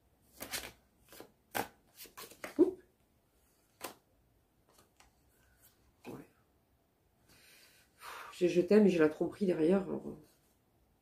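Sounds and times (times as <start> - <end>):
cards shuffling snaps: 0.3 - 2.6, 3.7 - 4.0.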